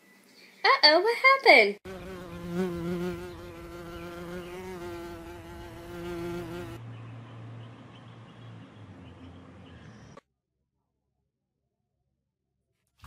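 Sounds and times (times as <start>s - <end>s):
pitched buzz wavering: 1.9s - 6.8s.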